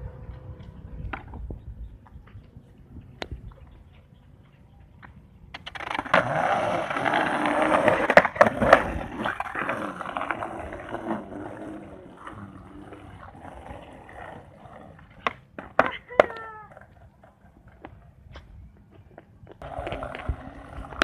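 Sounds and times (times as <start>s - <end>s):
skateboard wheels rolling on concrete: 0.0s - 21.0s
skateboard clacks: 4.9s - 18.0s, 18.8s - 21.0s.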